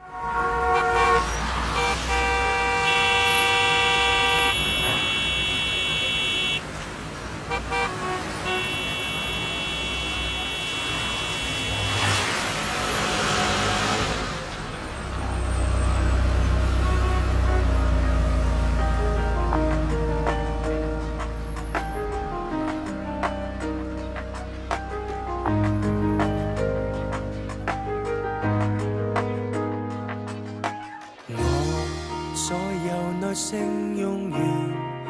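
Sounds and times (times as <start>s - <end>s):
car horns honking: 0.0s - 13.6s
low bass: 16.2s - 30.0s.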